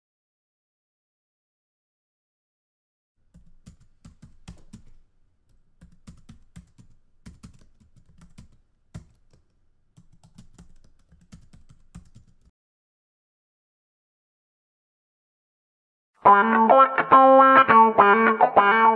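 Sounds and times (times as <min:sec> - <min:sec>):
computer keyboard typing: 0:03.3 - 0:12.5.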